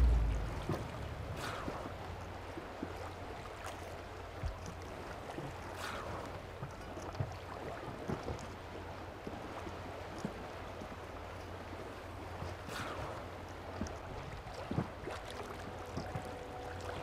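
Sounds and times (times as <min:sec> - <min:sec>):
wash of water: 0:00.0 - 0:03.1
low steady hum: 0:00.0 - 0:04.3
water lapping and splashing: 0:00.0 - 0:17.0.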